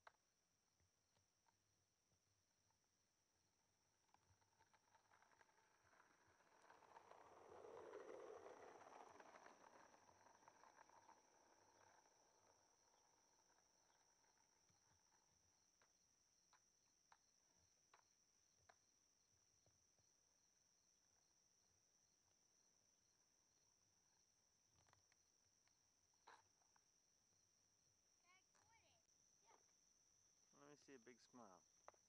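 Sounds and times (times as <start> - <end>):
crickets chirring: 8.8 - 32.0.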